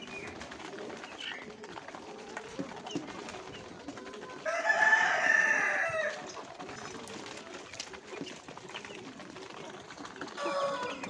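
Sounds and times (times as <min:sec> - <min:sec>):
rooster crowing: 0:04.4 - 0:06.1, 0:10.4 - 0:11.0.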